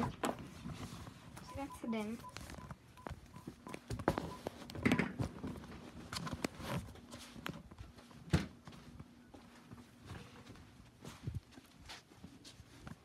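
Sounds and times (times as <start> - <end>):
footsteps on carpet: 6.6 - 13.0.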